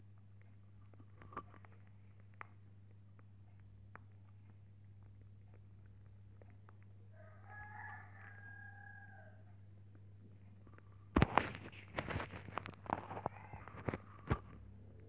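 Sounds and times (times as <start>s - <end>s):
rabbits nibbling: 0.0s - 15.0s
rooster crowing: 7.1s - 9.5s.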